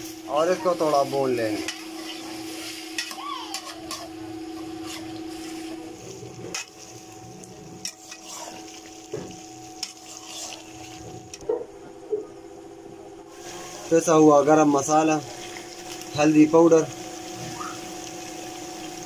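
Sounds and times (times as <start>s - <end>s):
faint sizzle: 0.0s - 19.0s
steady low hum: 0.0s - 19.0s
spatula scraping a pan: 1.5s - 7.1s, 7.8s - 11.4s.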